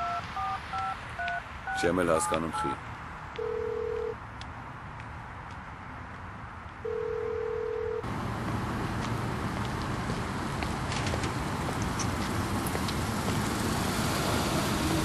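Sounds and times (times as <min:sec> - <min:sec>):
telephone ringing tone: 0:00.0 - 0:02.8, 0:03.4 - 0:04.2, 0:06.8 - 0:08.1
street traffic noise: 0:00.0 - 0:15.0.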